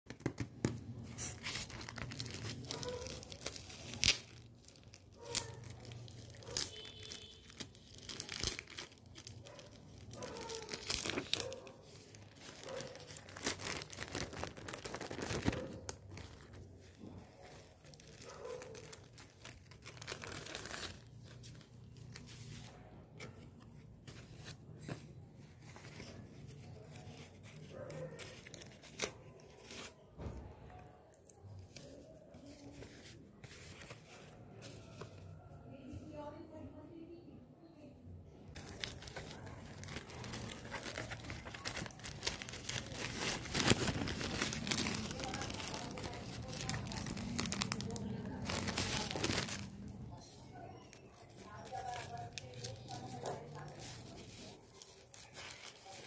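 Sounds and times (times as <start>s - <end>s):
stickers and plastic bag rustling: 0.1s - 35.9s, 38.3s - 56.0s.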